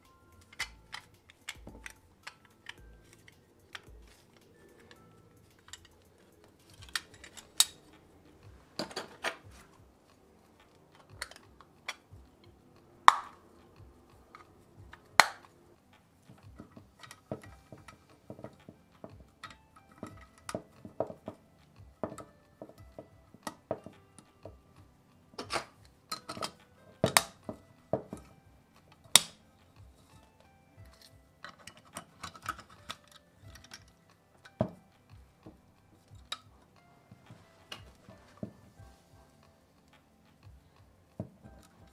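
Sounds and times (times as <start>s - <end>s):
model car parts clicking: 0.0s - 41.9s.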